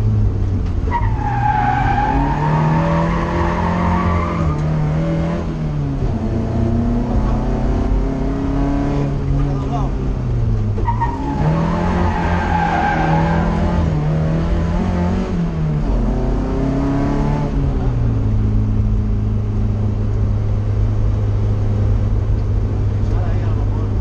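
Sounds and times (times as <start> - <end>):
car engine from inside: 3.8 - 10.8.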